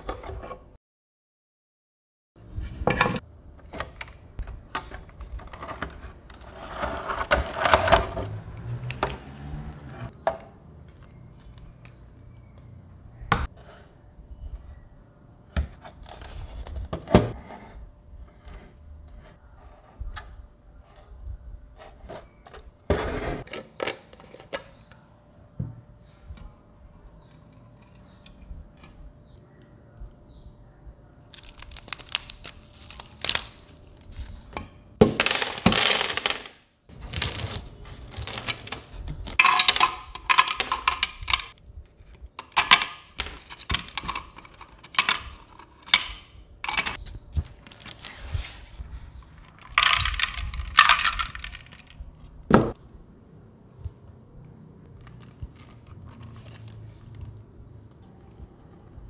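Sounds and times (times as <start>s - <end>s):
ice cubes clinking on plastic: 38.2s - 41.5s, 49.4s - 52.0s
plastic parts clicking and knocking: 38.2s - 41.6s, 42.3s - 47.0s, 49.2s - 52.8s.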